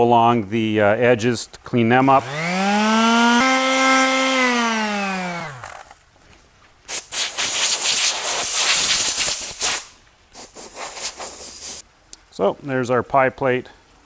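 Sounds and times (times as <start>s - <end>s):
palm sander humming: 2.0s - 6.0s
compressed air blow gun hissing: 6.9s - 11.8s.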